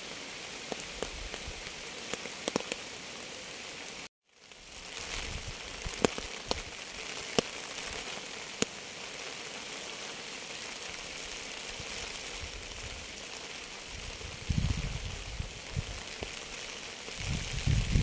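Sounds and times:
sharp raindrops striking: 0:00.0 - 0:18.0
steady rain hiss: 0:00.0 - 0:18.0.

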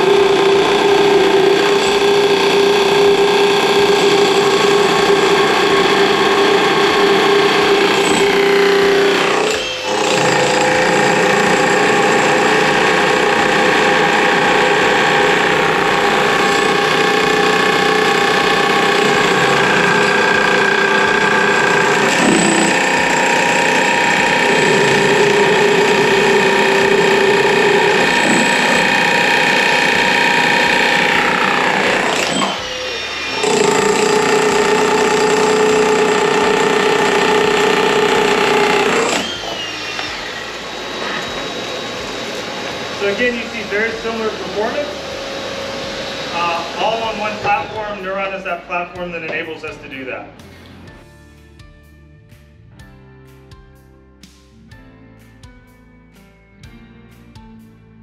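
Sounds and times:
demolition breakers hammering concrete: 0:00.0 - 0:32.6, 0:33.3 - 0:39.4.

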